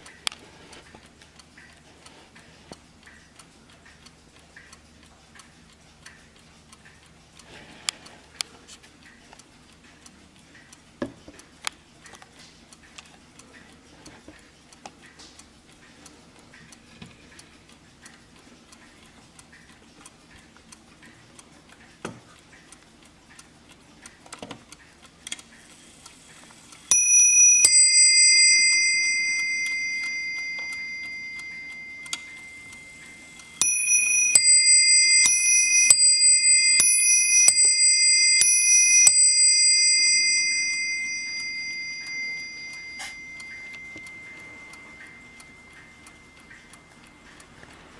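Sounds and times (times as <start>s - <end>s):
clock ticking softly: 0.0s - 47.9s
clock bells ding-dong strikes: 26.9s - 47.0s.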